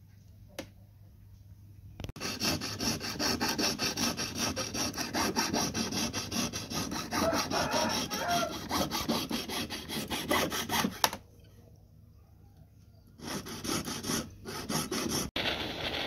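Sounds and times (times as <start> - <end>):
saw rasping through metal: 2.2 - 11.1, 13.2 - 15.4.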